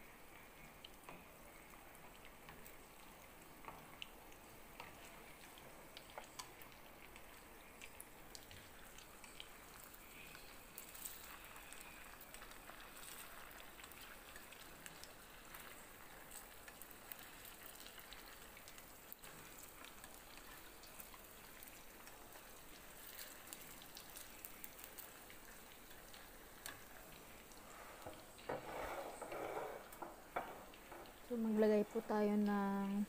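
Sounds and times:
meatballs sizzling in oil: 0.0s - 33.0s
oil crackling and popping: 0.0s - 33.0s.

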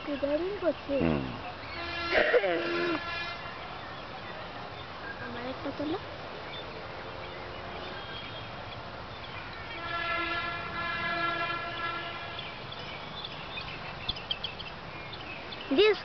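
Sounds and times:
horn long steady note: 1.7s - 3.7s, 9.4s - 12.6s.

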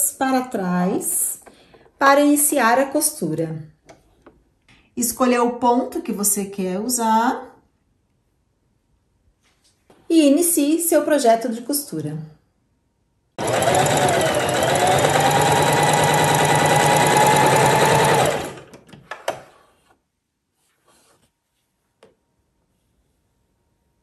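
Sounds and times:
sewing machine stitching: 13.4s - 19.7s.

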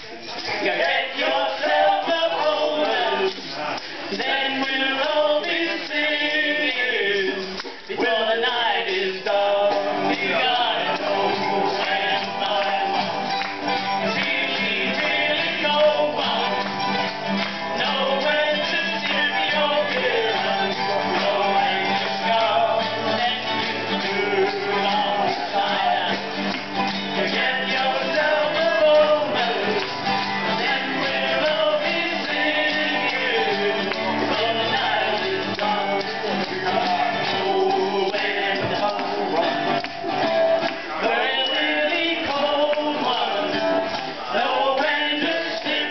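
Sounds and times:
strummed acoustic guitars: 0.0s - 45.9s.

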